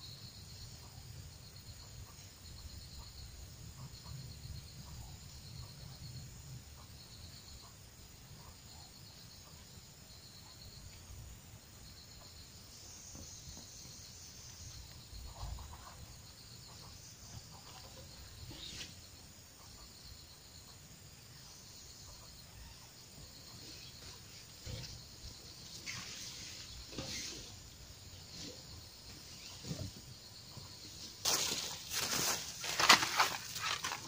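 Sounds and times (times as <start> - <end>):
insects chirping: 0.0 - 34.0.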